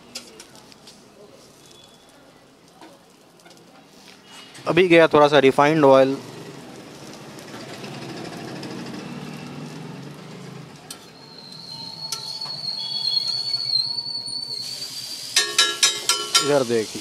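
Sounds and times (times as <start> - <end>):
metal spatula clicking on griddle: 10.9 - 11.1, 15.4 - 16.7.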